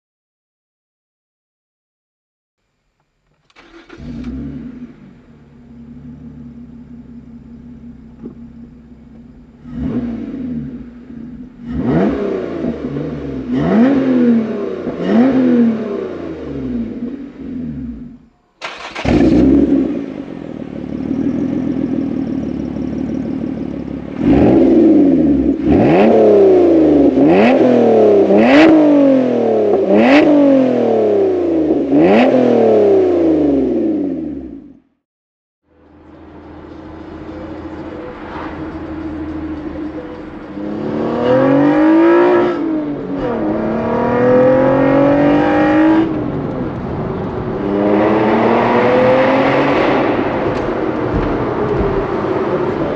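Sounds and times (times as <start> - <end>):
car engine idling: 3.3 - 12.0, 16.0 - 27.4, 35.7 - 45.2, 50.0 - 52.9
car engine revving: 3.5 - 34.8, 35.8 - 52.9.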